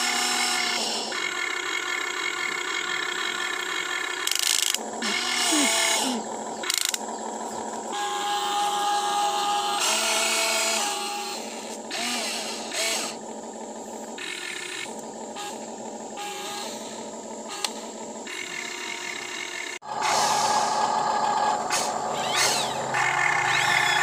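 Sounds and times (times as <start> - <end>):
electric motors whining: 0.0 - 24.0
sharp clicks: 4.2 - 4.8, 6.6 - 7.1.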